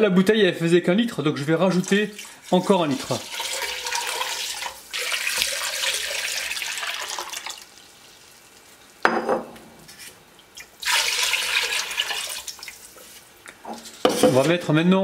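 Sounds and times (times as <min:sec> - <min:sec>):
water pouring into a metal pot: 0:01.7 - 0:08.6, 0:10.7 - 0:12.9.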